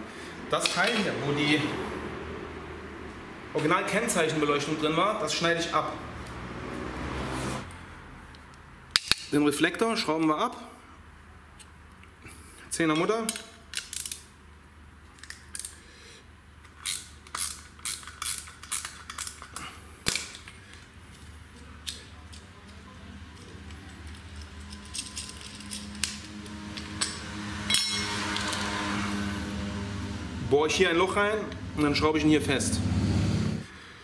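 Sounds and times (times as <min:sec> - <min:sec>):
machine hum: 0:23.4 - 0:33.7.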